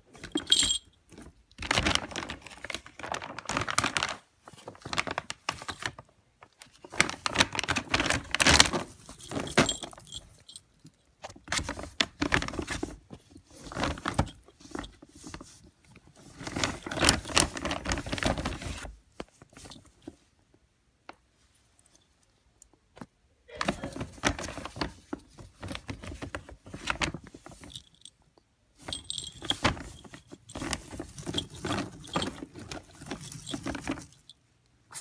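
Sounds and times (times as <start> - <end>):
plastic bag crinkling: 0.3 - 10.6, 28.8 - 34.3
litter pellets rattling: 0.4 - 0.8, 9.1 - 10.6, 28.9 - 34.3.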